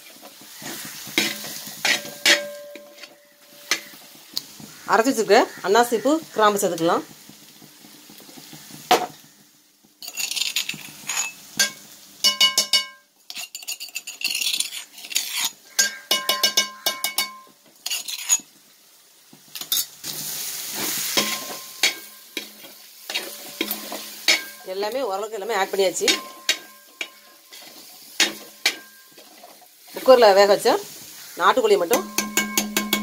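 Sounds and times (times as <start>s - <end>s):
frying sizzle: 0.0s - 33.0s
metal spoon scraping metal pot: 0.6s - 4.0s, 10.0s - 11.4s, 12.3s - 18.4s, 23.1s - 24.6s, 26.0s - 29.6s, 31.9s - 33.0s.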